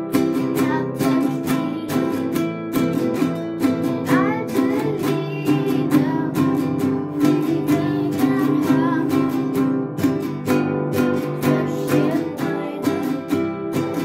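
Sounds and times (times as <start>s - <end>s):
classical guitar strummed: 0.0s - 14.0s
person singing: 0.0s - 14.0s.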